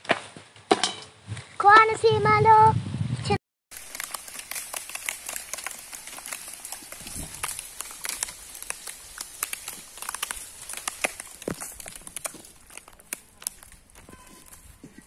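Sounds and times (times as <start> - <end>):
small crackles and clicks: 3.7 - 15.0.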